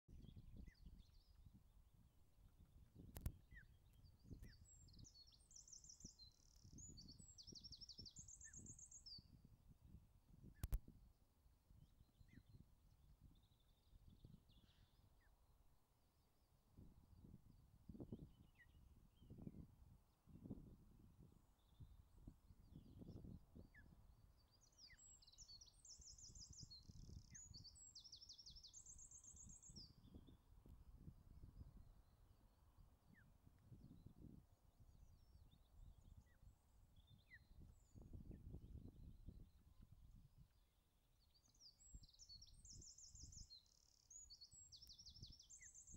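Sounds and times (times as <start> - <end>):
songbird singing trills: 3.0 - 9.5, 21.2 - 30.4, 41.2 - 45.9.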